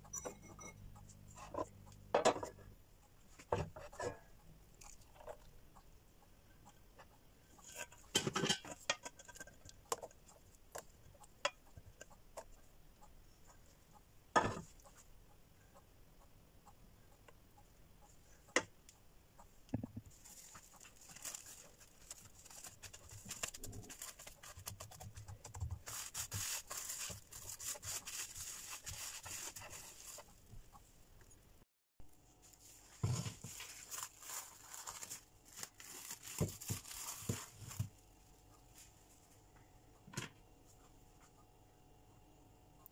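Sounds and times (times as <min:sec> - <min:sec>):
rustling: 0:20.0 - 0:30.8, 0:32.2 - 0:39.4
cling film crinkling: 0:20.2 - 0:30.2, 0:33.4 - 0:37.8.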